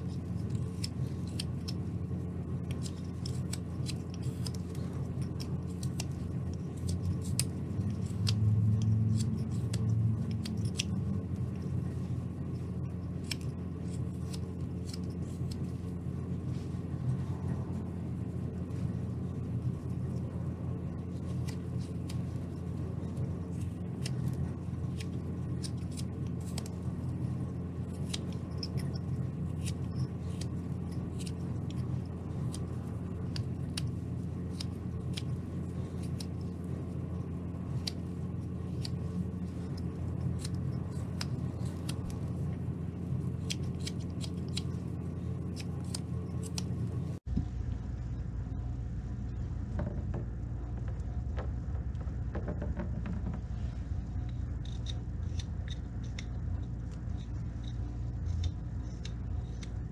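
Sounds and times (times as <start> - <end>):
steady low hum: 0.0 - 59.9
knife scraping wood: 2.6 - 12.0, 43.3 - 46.8.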